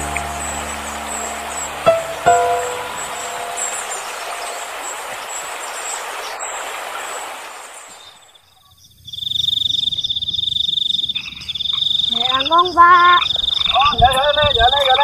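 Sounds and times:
soft outdoor hiss: 0:00.0 - 0:09.3.

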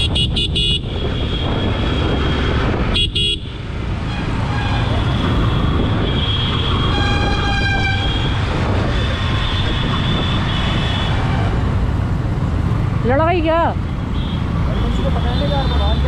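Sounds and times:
vehicle horn honking: 0:00.0 - 0:01.7, 0:02.9 - 0:03.5
motorcycle engine and road noise: 0:00.0 - 0:16.0.

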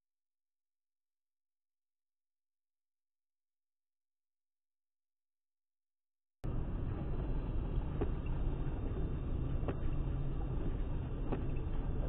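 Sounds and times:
car road and engine noise: 0:06.4 - 0:12.0
windscreen wiper click: 0:06.5 - 0:12.0.

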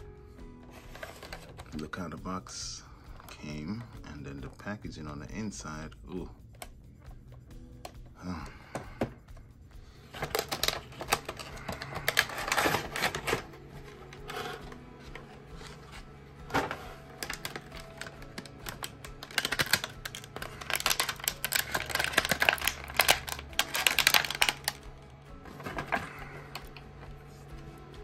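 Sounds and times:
cardboard and foam rustling: 0:00.6 - 0:02.0, 0:10.1 - 0:26.9
plastic packaging crinkling: 0:00.7 - 0:01.8, 0:10.1 - 0:26.8.

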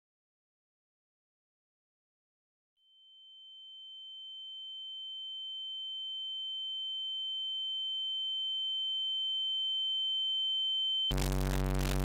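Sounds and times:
faint steady tones: 0:04.5 - 0:12.0
high-pitched electronic tone: 0:11.1 - 0:12.0.

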